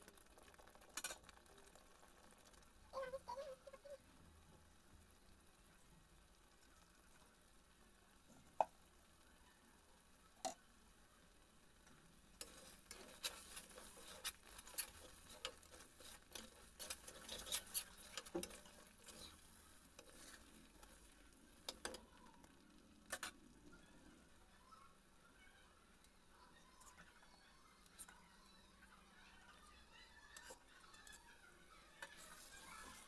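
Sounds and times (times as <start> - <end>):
paste sizzling: 10.2 - 23.8, 30.0 - 33.0
spatula scraping and tapping pan: 12.4 - 22.1.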